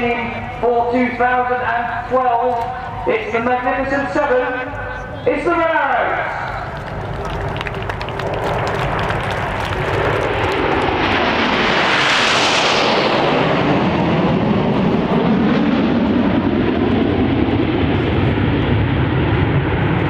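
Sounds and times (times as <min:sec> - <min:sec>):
jets roaring past overhead: 0:00.0 - 0:20.0.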